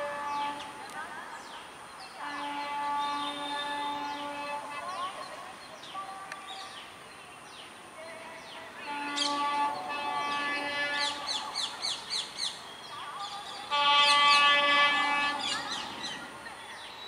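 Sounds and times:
train horn blasts: 0.0 - 0.7, 2.2 - 4.8, 8.6 - 11.4, 13.7 - 16.2
birds chirping: 0.0 - 17.0.

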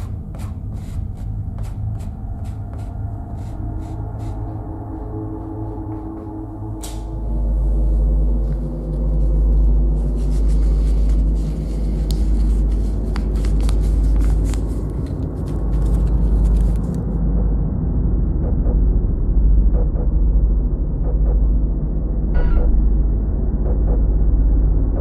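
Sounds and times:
dark ambient drone: 0.0 - 25.0
crackles and clicks: 8.4 - 17.4.

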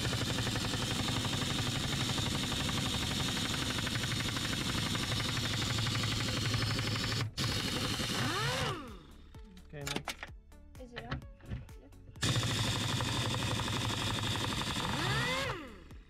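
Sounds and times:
impact wrench hammering rattle: 0.0 - 9.1, 12.2 - 15.9.

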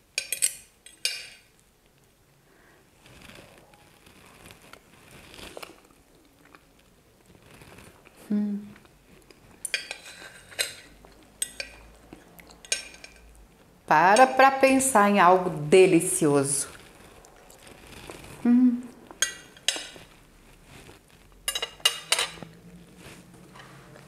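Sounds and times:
cutlery clinking and scraping on plate: 0.2 - 1.5, 9.6 - 11.9, 12.6 - 13.3, 19.2 - 20.1, 21.5 - 22.6.

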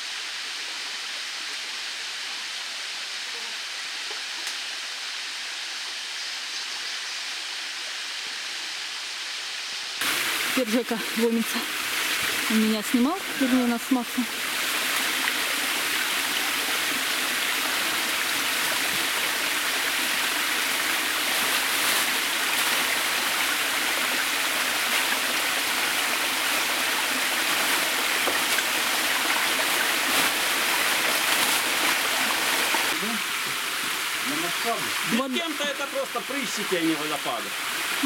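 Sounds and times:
river rushing over waterfalls: 13.2 - 38.0.

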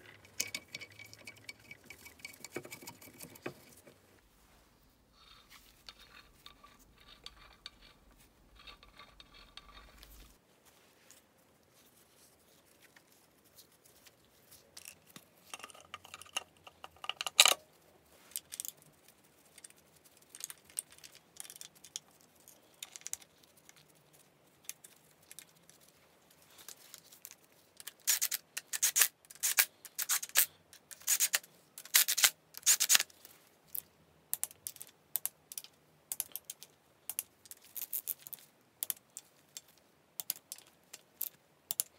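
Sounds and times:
metal tools clicking and scraping: 0.0 - 3.9, 5.3 - 10.3, 14.8 - 17.6.

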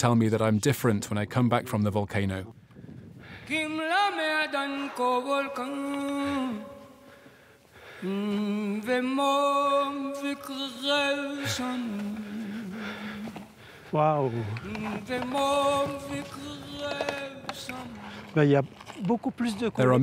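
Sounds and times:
person chanting: 14.4 - 18.3.

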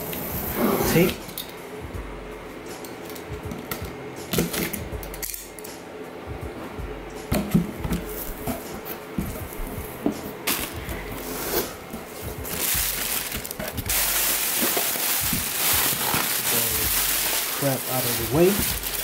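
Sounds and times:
cardboard tearing rasp: 12.5 - 19.0.

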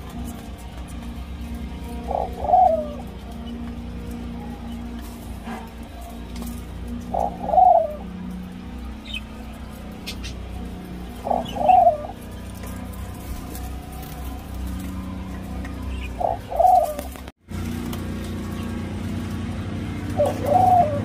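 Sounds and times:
dove cooing: 0.0 - 21.0.

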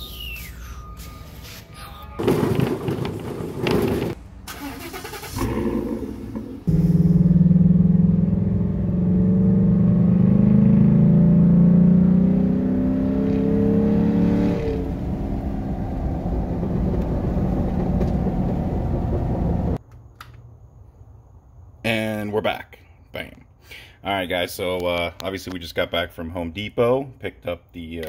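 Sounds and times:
pickup engine accelerating: 3.6 - 19.8.

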